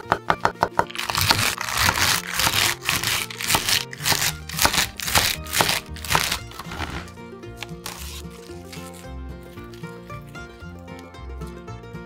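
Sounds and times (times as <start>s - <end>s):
knife chopping on wooden board: 0.0s - 7.1s, 7.8s - 8.4s
background music: 0.0s - 12.0s.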